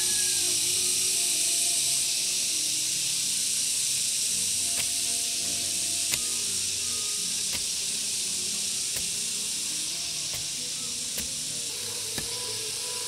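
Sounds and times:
steady high hiss: 0:00.0 - 0:13.0
hoe chopping into soil: 0:04.7 - 0:05.0, 0:06.1 - 0:06.3, 0:07.4 - 0:07.8, 0:08.9 - 0:09.2, 0:10.3 - 0:11.5.

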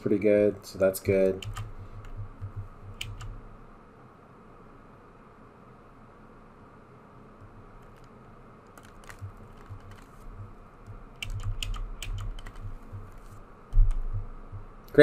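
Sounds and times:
computer keyboard keys clicking: 0:01.2 - 0:03.4, 0:08.7 - 0:10.1, 0:11.2 - 0:14.2
soft low thuds: 0:01.4 - 0:03.6, 0:09.1 - 0:14.9.

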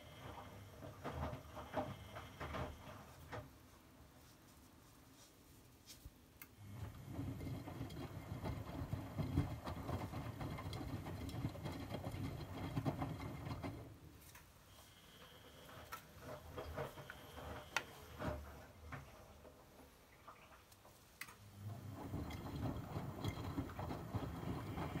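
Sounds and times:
washing machine drum sloshing laundry: 0:00.0 - 0:03.6, 0:06.6 - 0:14.0, 0:16.1 - 0:25.0.

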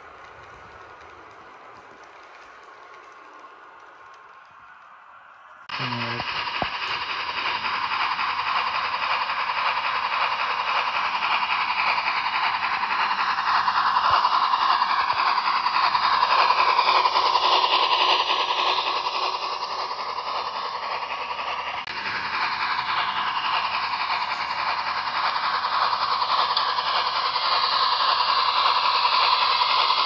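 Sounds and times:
model steam locomotive hissing: 0:00.0 - 0:30.0.

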